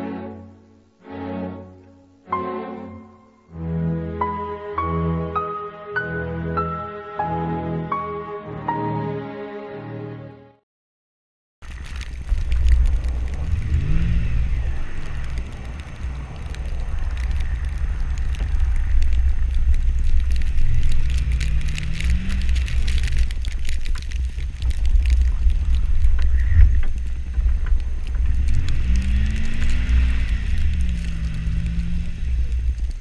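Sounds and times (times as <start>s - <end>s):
snow crackling under tyres: 11.6s - 33.0s
wind rumble on microphone: 11.6s - 33.0s
truck engine revving: 12.3s - 23.6s, 26.7s - 33.0s.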